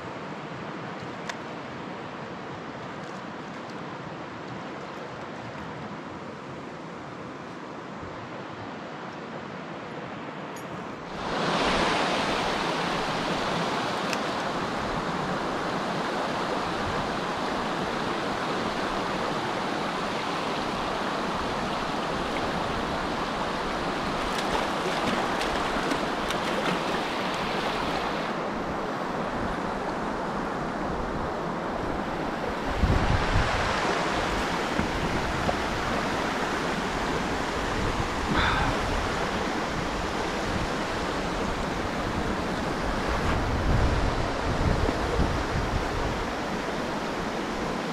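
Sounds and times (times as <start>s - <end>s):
river water rushing over stones: 10.9s - 47.9s.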